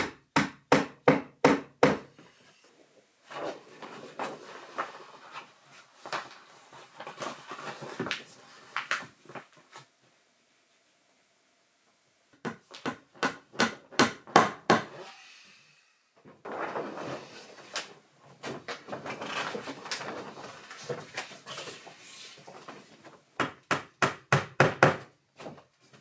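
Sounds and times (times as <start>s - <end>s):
knocking and handling noise: 12.4s - 15.0s.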